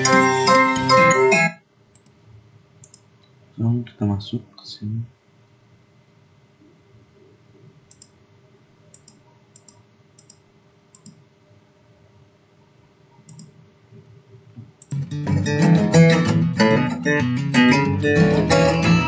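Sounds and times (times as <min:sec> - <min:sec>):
strummed guitar music: 0:00.0 - 0:01.5, 0:14.9 - 0:19.0
computer mouse clicks: 0:01.9 - 0:02.2, 0:02.8 - 0:03.4, 0:07.9 - 0:08.2, 0:08.9 - 0:11.2, 0:13.1 - 0:13.6, 0:14.8 - 0:15.0.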